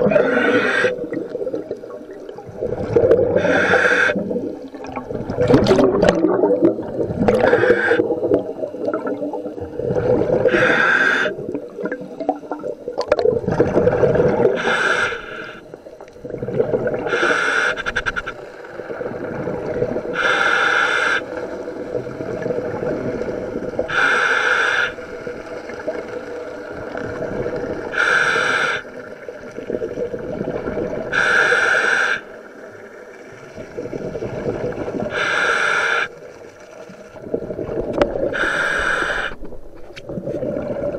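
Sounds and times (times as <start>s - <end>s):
diver breathing through regulator: 0.0s - 1.1s, 2.9s - 4.4s, 7.2s - 8.4s, 10.2s - 11.5s, 14.3s - 15.8s, 17.0s - 18.5s, 20.1s - 21.4s, 23.9s - 25.1s, 27.9s - 29.0s, 31.1s - 32.4s, 35.1s - 36.2s, 38.2s - 39.6s
low rumble and gurgling: 0.0s - 40.9s.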